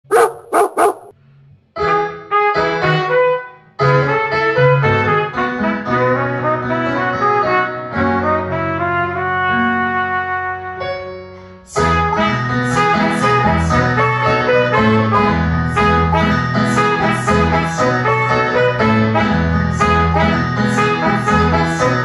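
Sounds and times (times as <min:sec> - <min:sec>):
karaoke backing track: 0:11.7 - 0:22.0.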